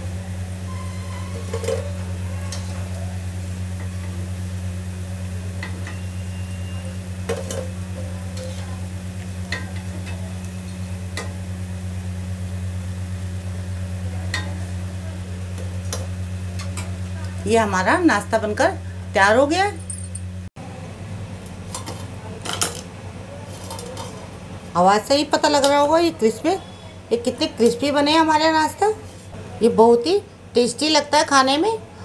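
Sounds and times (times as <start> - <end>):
hot oil sizzling: 0.0 - 19.2
steady low hum: 0.0 - 22.3.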